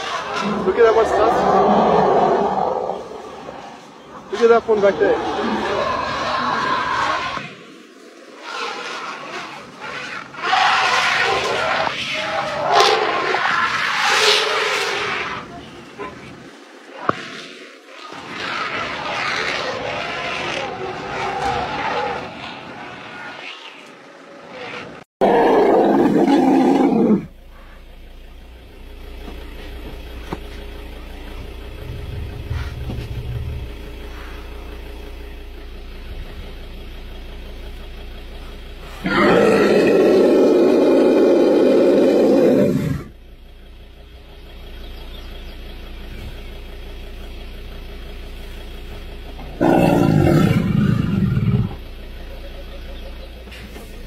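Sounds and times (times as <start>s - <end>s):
loud animal roars: 0.1s - 3.6s, 4.7s - 7.4s, 25.2s - 27.3s, 39.0s - 43.1s, 49.6s - 51.8s.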